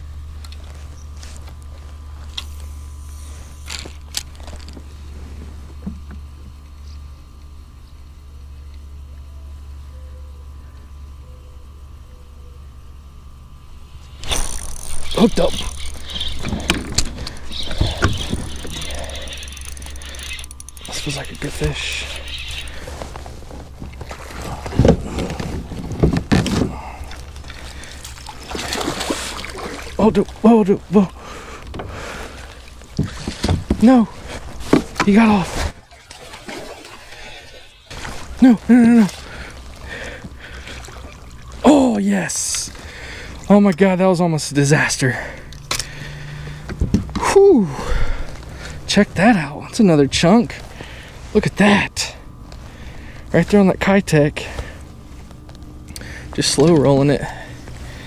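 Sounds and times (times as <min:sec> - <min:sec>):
fishing reel clicks: 0:14.1 - 0:22.8.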